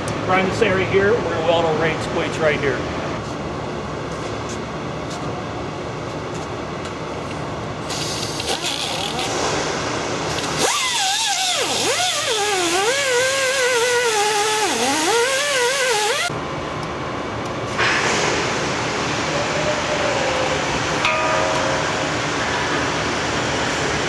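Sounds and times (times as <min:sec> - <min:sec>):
angle grinder whine: 0:10.3 - 0:16.3.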